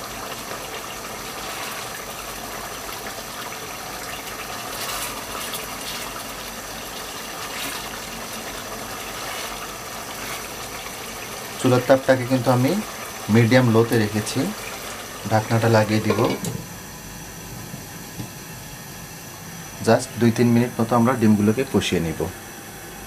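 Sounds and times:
food sizzling and simmering in pot: 0.0s - 23.0s
wooden spatula scraping: 4.7s - 6.1s, 7.3s - 10.9s.

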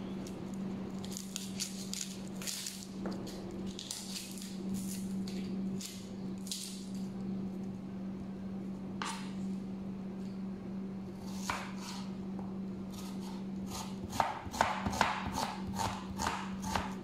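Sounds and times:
steady low hum: 0.0s - 17.0s
knife scraping onion skin: 12.9s - 16.8s.

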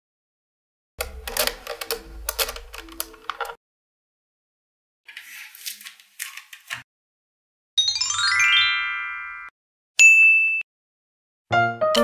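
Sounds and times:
magnetic balls clicking: 1.0s - 3.6s
rising chime run: 7.8s - 9.5s
short high ding: 10.0s - 10.7s.

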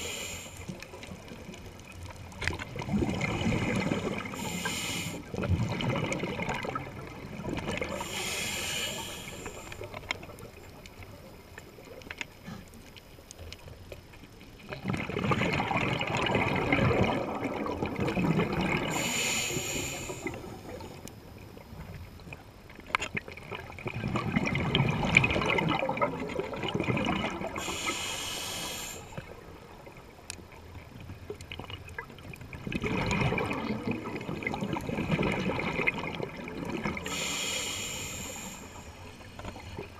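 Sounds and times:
regulator hissing inhale: 0.0s - 0.8s, 4.2s - 5.3s, 7.9s - 10.0s, 18.9s - 20.5s, 27.6s - 29.4s, 37.0s - 39.9s
exhaled bubbles gurgling: 0.0s - 12.6s, 14.6s - 39.9s.

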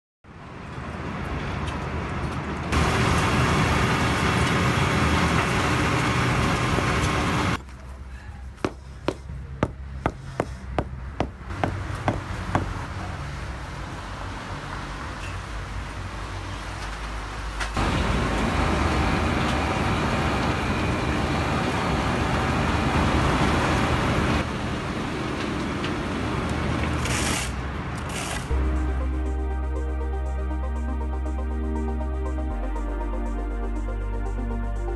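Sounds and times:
construction vehicles running: 0.7s - 15.1s, 16.6s - 32.3s
sharp knocks from paving work: 8.6s - 12.8s.

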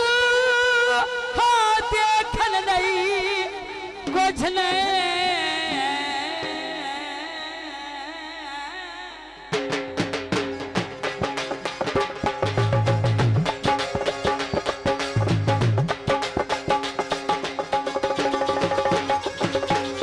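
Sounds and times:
dhol drumming: 9.4s - 20.0s.

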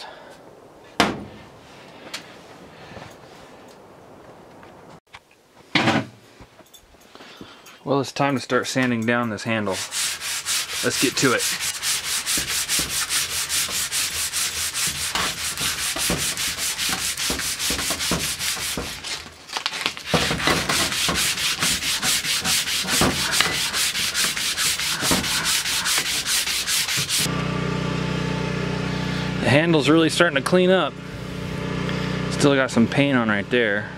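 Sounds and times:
sandpaper rubbing on wood: 9.6s - 19.3s, 20.0s - 27.3s.

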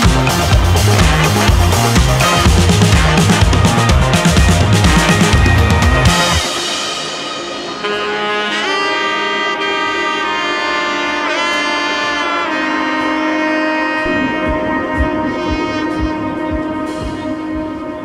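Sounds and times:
low steady beat: 13.9s - 18.0s.

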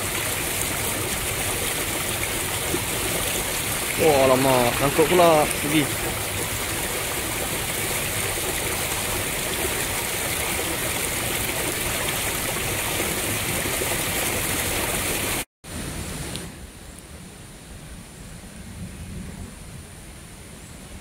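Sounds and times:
river rushing over rocks: 0.0s - 15.4s.

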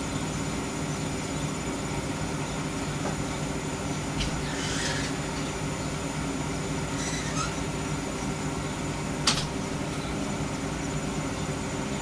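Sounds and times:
low mechanical hum: 0.0s - 12.0s
faint squeak: 4.4s - 5.3s, 6.9s - 7.7s.

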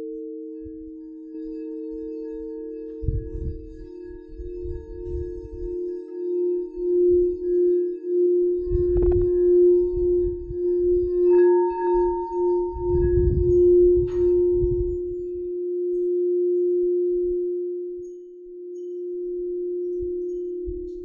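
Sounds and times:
high bowl tones ringing: 0.0s - 21.0s
singing bowl low hum: 0.0s - 21.0s
low rumble: 8.7s - 11.1s.

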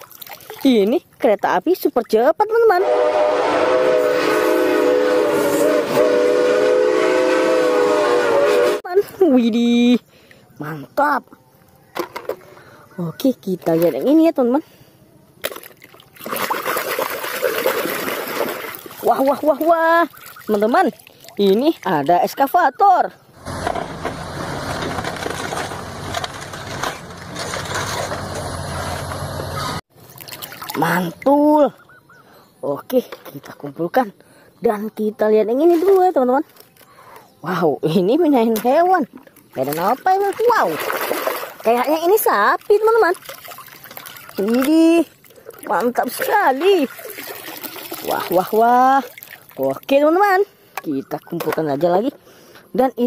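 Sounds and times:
train horn: 2.8s - 8.9s
excavator diesel engine running: 23.4s - 29.8s
wood crunching and splintering: 23.5s - 28.5s.

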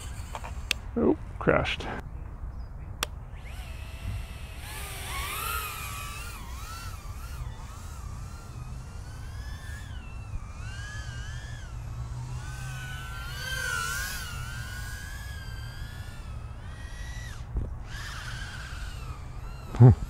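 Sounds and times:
drone motors whining: 0.0s - 0.9s, 3.0s - 20.0s.

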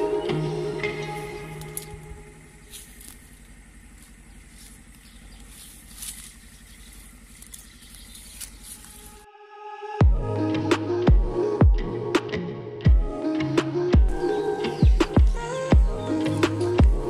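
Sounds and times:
low steady rumble: 0.0s - 9.2s
branches brushing microphone: 1.0s - 9.2s.

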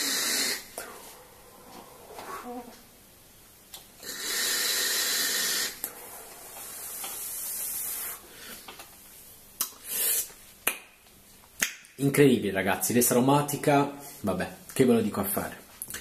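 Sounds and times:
airy hiss of vape draw: 0.0s - 0.8s, 4.0s - 8.6s, 9.8s - 10.4s
breathy exhale hiss: 0.0s - 2.6s, 4.0s - 8.7s, 9.8s - 10.3s.

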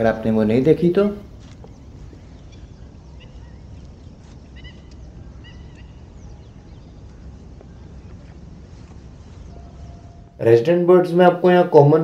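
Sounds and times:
steady low rumble: 0.0s - 12.0s
short high bird calls: 1.3s - 10.4s.

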